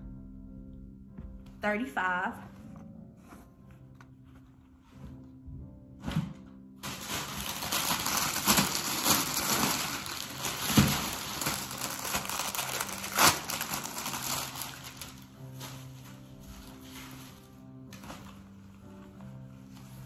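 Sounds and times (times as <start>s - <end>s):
plastic packaging crinkling: 6.8s - 18.4s.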